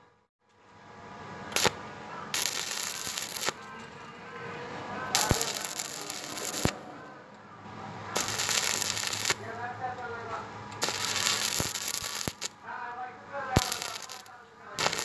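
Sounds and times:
welding arc crackling and sputtering: 1.5s - 3.7s, 5.1s - 6.8s, 8.1s - 9.5s, 10.7s - 12.6s, 13.5s - 15.0s.

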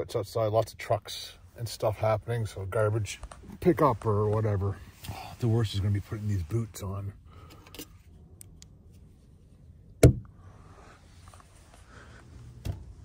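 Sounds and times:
faint rustling: 1.3s - 8.2s, 10.5s - 13.0s
sharp thump: 10.0s - 10.3s.

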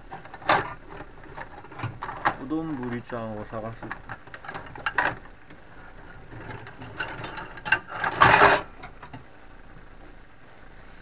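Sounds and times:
kitchenware rattle: 6.4s - 8.7s.

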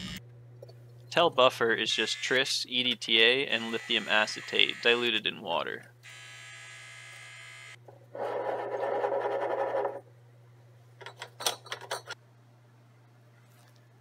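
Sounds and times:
steady low hum: 0.0s - 6.5s
electric pipette motor whirring: 3.6s - 5.2s, 6.0s - 10.0s.

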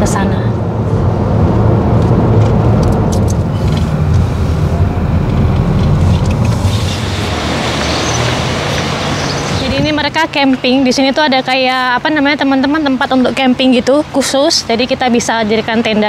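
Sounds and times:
car cabin road rumble: 0.0s - 11.3s.

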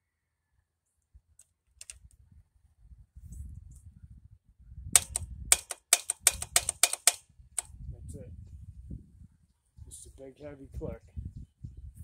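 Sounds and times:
sharp clicks and knocks: 5.0s - 7.7s.

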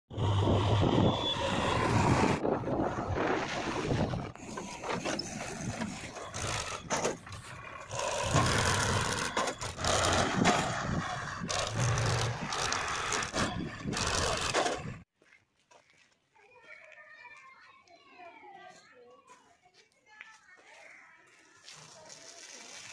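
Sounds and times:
diesel engines running: 0.1s - 15.0s.

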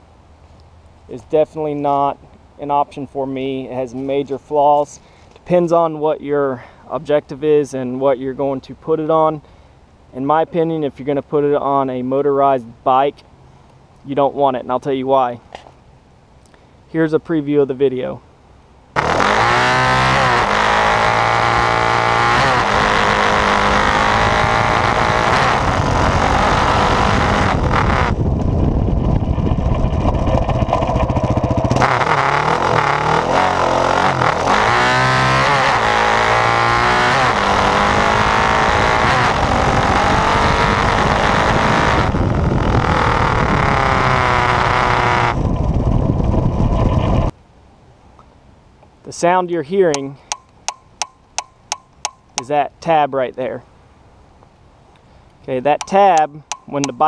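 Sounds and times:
mount vibration buzz: 18.9s - 47.3s
quad engine revving: 19.0s - 47.3s.

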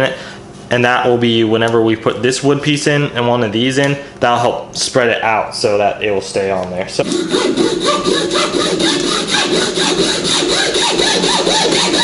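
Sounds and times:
hand saw cutting wood: 7.0s - 12.0s.

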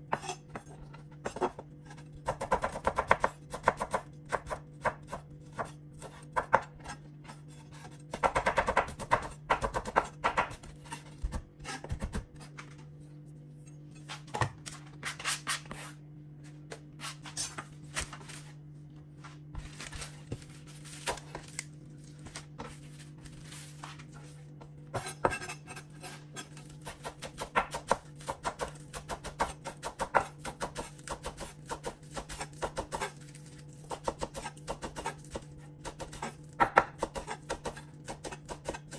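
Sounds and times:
knife chopping on wooden board: 2.2s - 7.0s, 7.7s - 12.3s, 25.0s - 33.1s, 33.9s - 38.9s.

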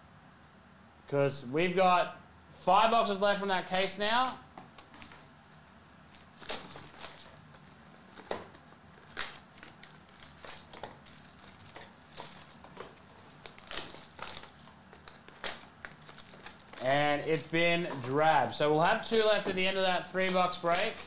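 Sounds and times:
cardboard and foil crinkling: 6.2s - 18.2s, 20.2s - 21.0s.

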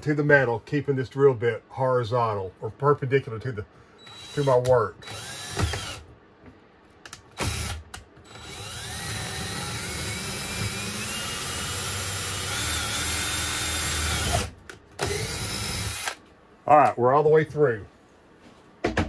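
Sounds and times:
cordless drill whining: 4.0s - 6.0s, 7.4s - 16.2s.

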